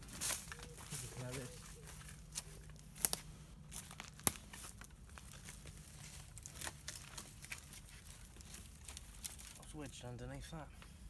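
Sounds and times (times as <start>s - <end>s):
footsteps crunching dry leaves: 0.0s - 10.6s
twig snaps: 2.3s - 5.6s.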